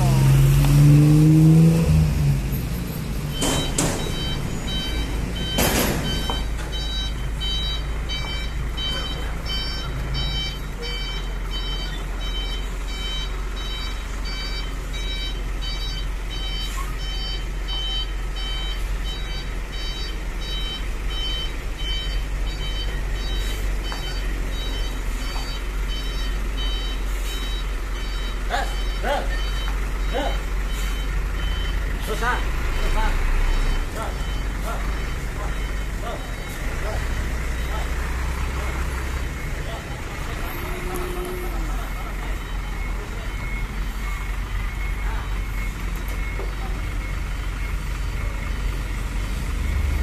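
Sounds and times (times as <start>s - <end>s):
diesel engine running: 0.0s - 50.0s
truck reversing alarm beeping: 0.0s - 50.0s.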